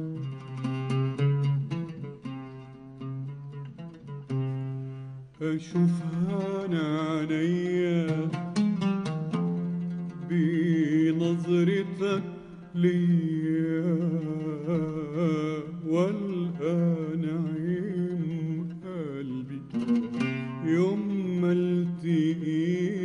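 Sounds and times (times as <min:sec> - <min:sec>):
oud plucks: 0:00.0 - 0:23.0
man singing ornamented vocal line: 0:05.4 - 0:08.6, 0:10.2 - 0:19.8, 0:20.5 - 0:23.0.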